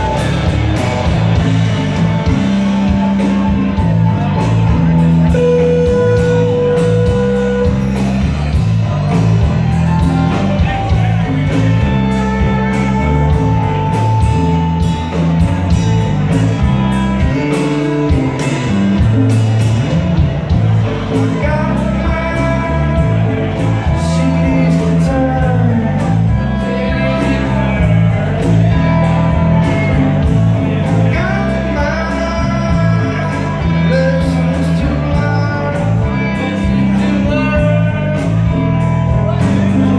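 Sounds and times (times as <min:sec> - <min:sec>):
bass guitar: 0:00.0 - 0:39.9
drums: 0:00.0 - 0:39.9
electric guitars: 0:00.0 - 0:39.9
keyboards: 0:00.0 - 0:39.9
man singing: 0:20.7 - 0:39.9.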